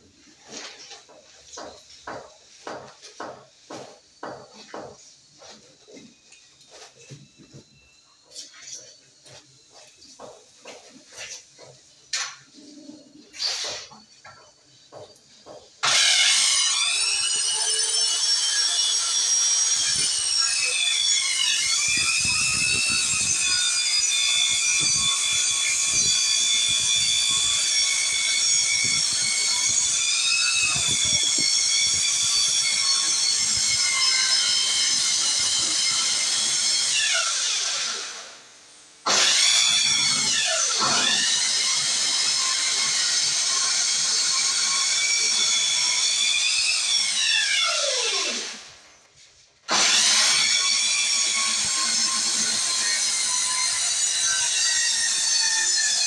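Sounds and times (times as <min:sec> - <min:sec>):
power tool whining: 0:13.3 - 0:49.0, 0:49.7 - 0:56.0.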